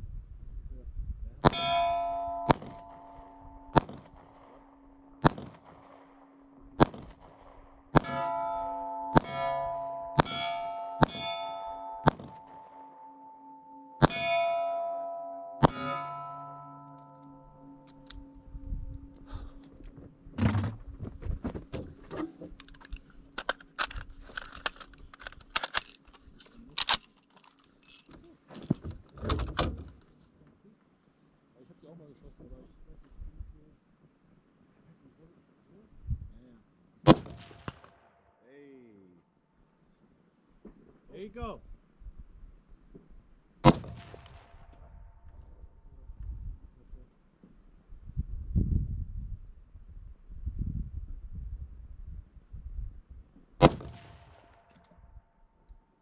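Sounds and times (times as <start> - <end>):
steel target ringing: 1.4 - 20.9
handgun shots: 5.2 - 5.7, 43.6 - 44.4, 53.6 - 54.5
rifle and gear rattling: 19.2 - 29.2.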